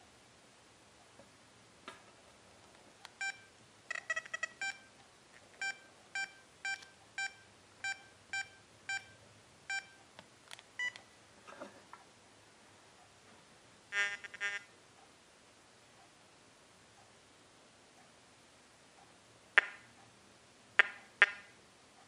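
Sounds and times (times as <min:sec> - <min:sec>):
short electronic key beeps: 0:03.2 - 0:04.9, 0:05.6 - 0:10.0, 0:10.8 - 0:11.0.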